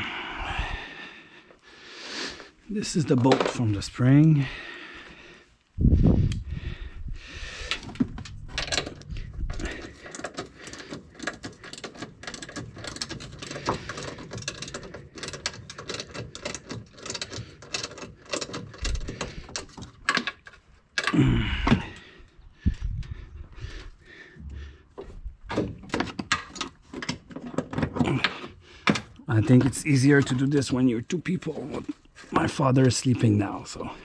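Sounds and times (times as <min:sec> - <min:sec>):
metallic clicks of hand tools: 0:07.6 - 0:21.2.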